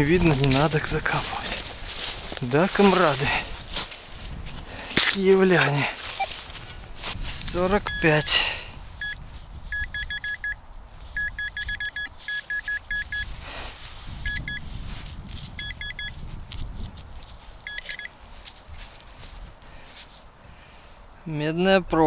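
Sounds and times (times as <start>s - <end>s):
metal detector short high beeps: 7.8s - 8.4s, 9.0s - 10.6s, 11.2s - 13.3s, 14.2s - 14.6s, 15.6s - 16.2s, 17.7s - 18.1s.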